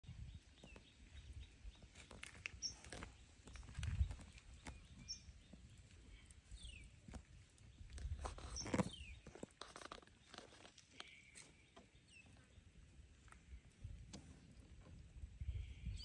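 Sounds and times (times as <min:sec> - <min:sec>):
small clicks and rustles: 0:01.8 - 0:12.5.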